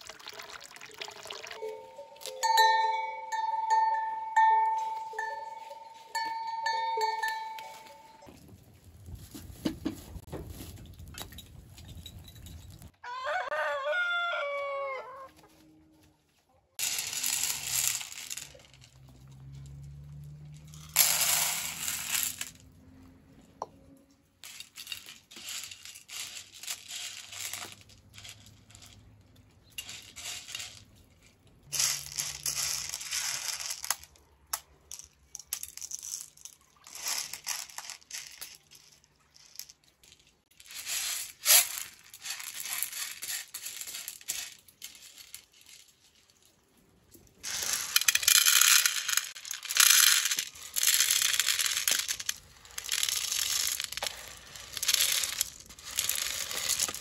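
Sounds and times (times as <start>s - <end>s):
dried beans rattling on metal tray: 16.8s - 20.0s, 20.6s - 22.6s, 24.4s - 31.0s, 31.6s - 34.2s, 34.9s - 46.4s, 47.4s - 57.0s
beans sliding into metal pot: 47.5s - 49.2s, 49.8s - 57.0s.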